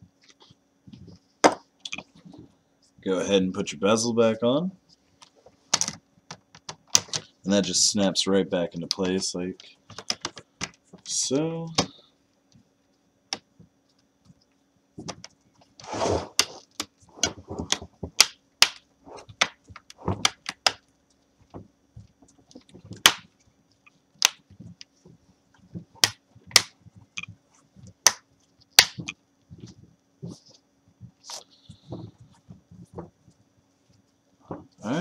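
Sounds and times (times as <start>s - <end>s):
handling rustle: 21.0s - 35.0s.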